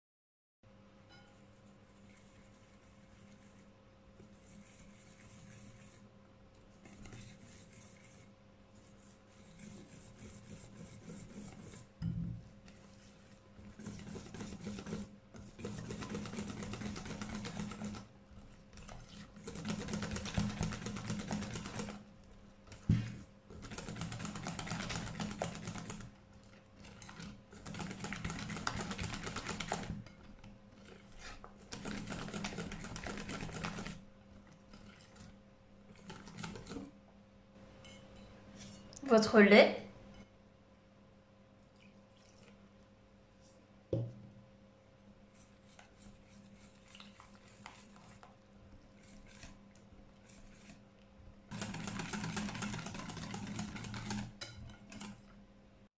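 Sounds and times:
whisk ticking against glass bowl: 13.8s - 22.1s, 51.5s - 55.3s.

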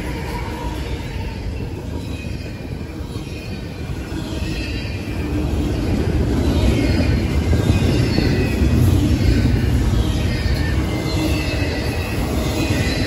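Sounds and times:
high wheel squeal: 0.0s - 13.0s
train wheels rumbling on rail: 0.0s - 13.0s.

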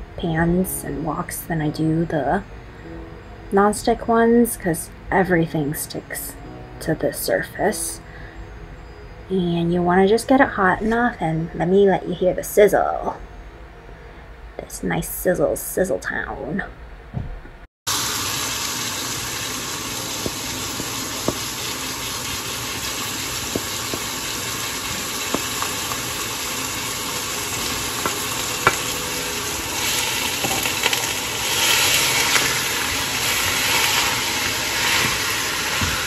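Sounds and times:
meat sizzling in hot oil: 17.9s - 36.0s.

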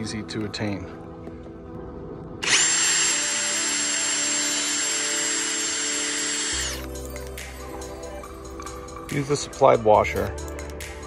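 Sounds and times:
background music: 0.0s - 11.0s
cordless drill whining: 2.4s - 7.0s.

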